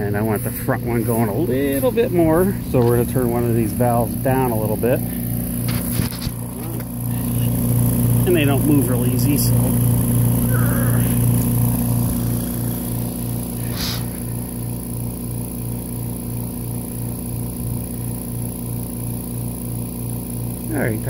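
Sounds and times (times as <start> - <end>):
compressors humming: 0.0 - 21.0
short burst of noise: 13.5 - 14.4.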